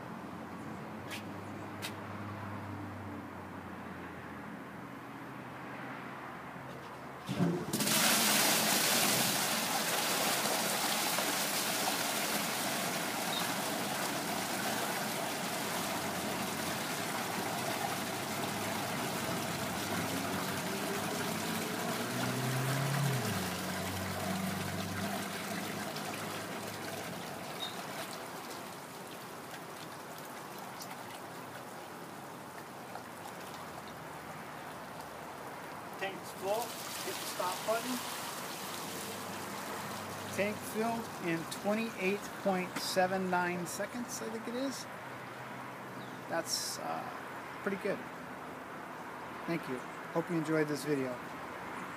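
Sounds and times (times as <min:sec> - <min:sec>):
water gushing into plastic tub: 0:07.3 - 0:33.9, 0:36.0 - 0:42.4.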